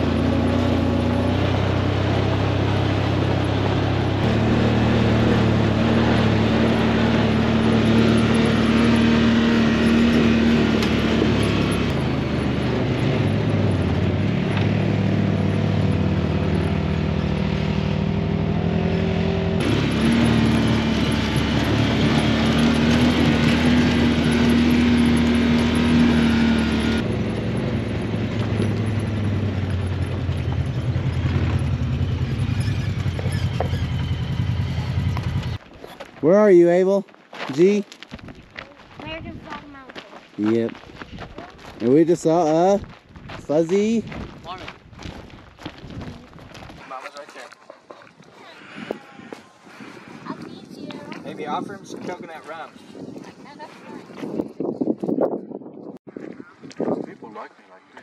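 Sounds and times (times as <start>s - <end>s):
utility vehicle engine running: 0.0s - 35.7s
tyres on gravel: 0.0s - 54.4s
wind noise: 38.1s - 39.6s, 40.9s - 41.8s, 42.6s - 46.9s, 48.2s - 57.6s.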